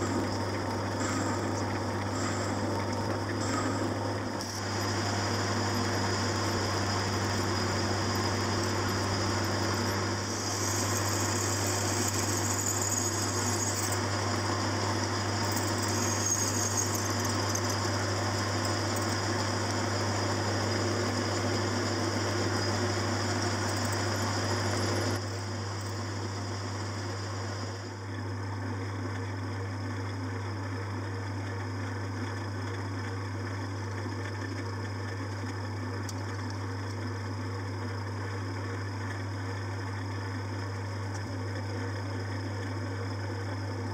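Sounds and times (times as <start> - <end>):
lathe motor hum: 0.0 - 43.9
drill cutting metal: 3.4 - 26.3.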